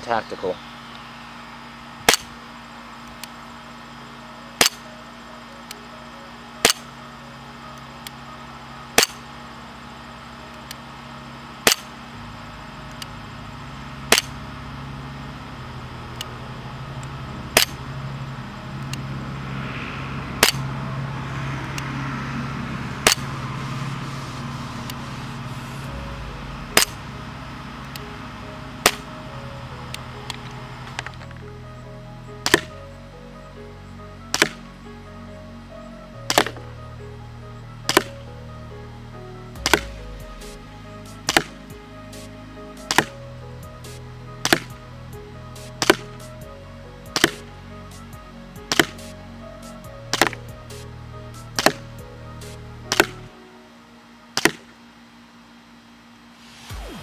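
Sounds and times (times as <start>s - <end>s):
airsoft pistol shots cracking: 34.3s - 34.6s, 41.3s - 41.6s, 48.7s - 49.0s.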